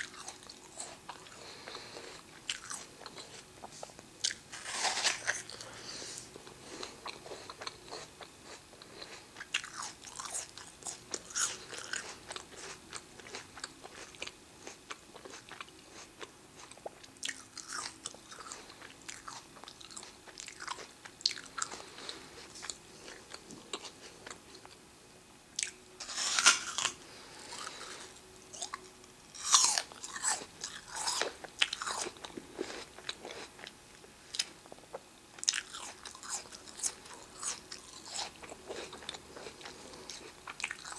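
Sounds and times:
apple crunching being chewed: 0:00.0 - 0:24.8, 0:25.6 - 0:40.9.

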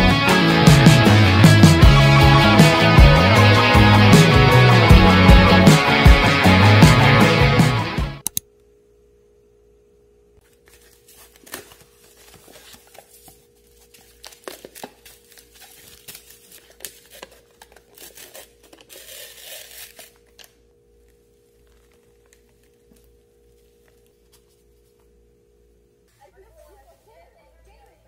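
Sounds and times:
paper and plastic wrapping tearing: 0:10.4 - 0:23.2.

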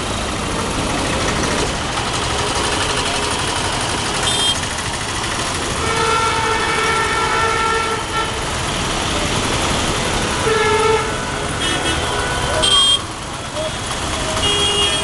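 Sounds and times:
busy road traffic: 0:00.0 - 0:15.0
vehicle horn honking: 0:04.2 - 0:04.7, 0:05.8 - 0:08.5, 0:10.3 - 0:15.0.

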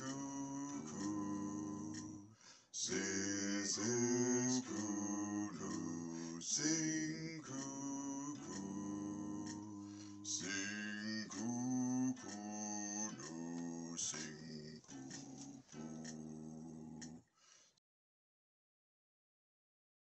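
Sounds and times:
men singing a round: 0:00.0 - 0:17.2.

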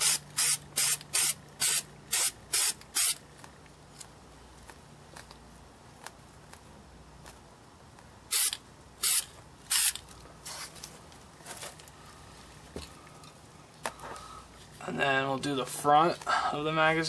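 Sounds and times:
aerosol spray can bursts: 0:00.0 - 0:03.2, 0:08.3 - 0:10.7.

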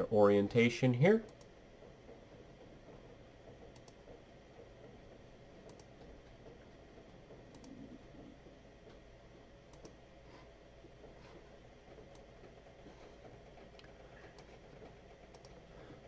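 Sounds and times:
computer mouse clicks: 0:03.7 - 0:04.1, 0:05.6 - 0:06.1, 0:07.5 - 0:07.9, 0:09.7 - 0:10.0, 0:12.0 - 0:12.3, 0:13.7 - 0:15.7.

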